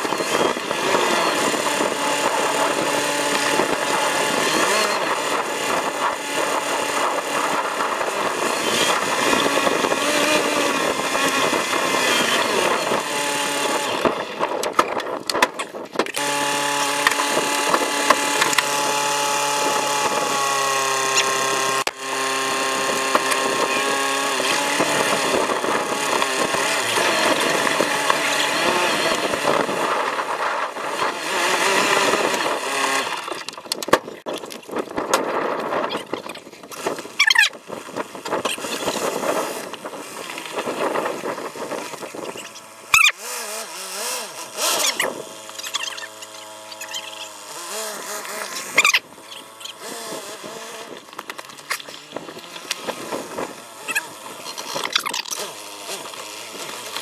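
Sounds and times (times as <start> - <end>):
vehicle engine high-pitched: 0.0 - 14.8, 16.2 - 33.6, 36.7 - 57.0.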